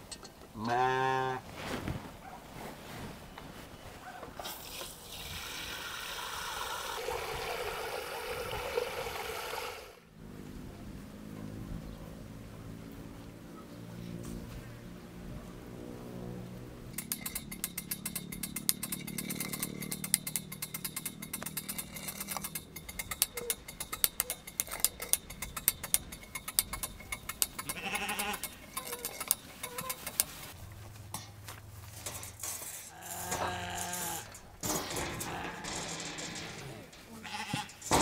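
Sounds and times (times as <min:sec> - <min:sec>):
metal lid clanking: 0:16.9 - 0:30.4, 0:32.0 - 0:38.0
hand-cranked winch clicking: 0:16.9 - 0:30.6.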